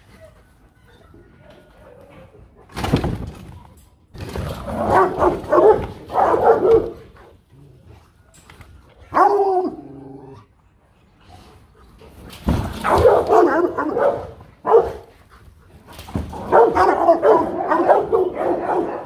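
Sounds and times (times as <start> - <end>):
dogs barking: 4.6 - 7.2, 9.1 - 9.9, 12.8 - 15.1, 16.3 - 19.0.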